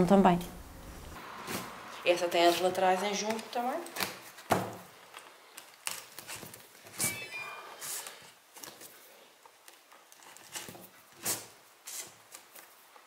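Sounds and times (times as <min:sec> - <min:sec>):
short high squeak: 0:07.0 - 0:08.1.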